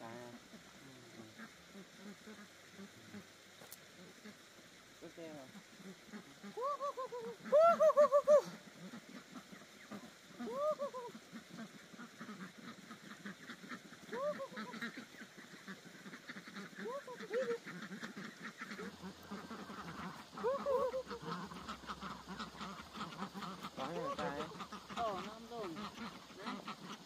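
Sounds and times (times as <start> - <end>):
ducks quacking loudly: 0.0 - 3.4, 5.1 - 27.0
soft duck chatter: 0.0 - 27.0.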